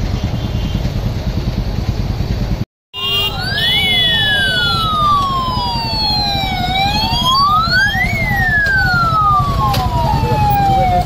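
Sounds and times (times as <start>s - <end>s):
motorcycle engines rumbling: 0.0s - 11.0s
chirping siren tone: 3.0s - 11.0s
police siren wailing: 3.0s - 11.0s.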